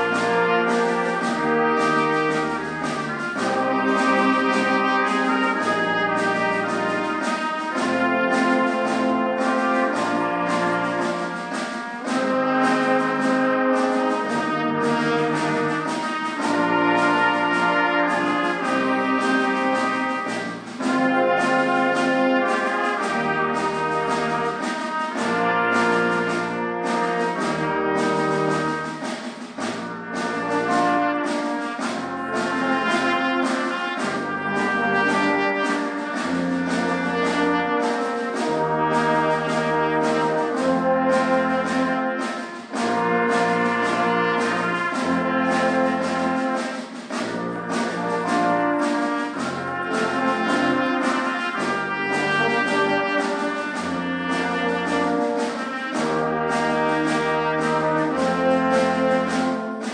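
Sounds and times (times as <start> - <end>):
tuba bass line: 0.0 - 11.4, 25.2 - 28.8, 29.6 - 46.6, 47.2 - 51.0, 55.9 - 59.6
brass ensemble playing chords: 0.0 - 59.9.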